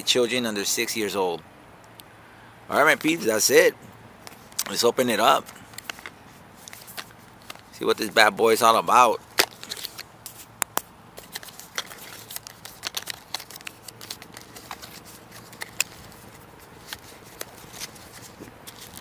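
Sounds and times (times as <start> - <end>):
packaging rustling and crinkling: 5.4 - 7.8, 9.4 - 10.5, 11.2 - 19.0.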